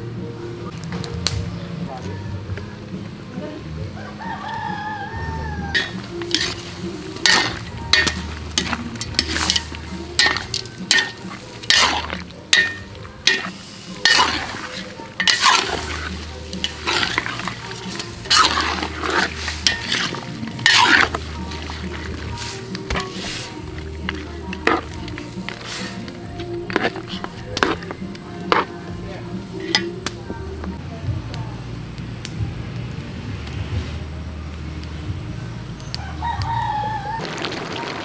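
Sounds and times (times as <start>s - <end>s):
food sizzling: 4.0s - 31.0s, 36.2s - 38.0s
spatula scraping cooking pan: 5.6s - 30.1s.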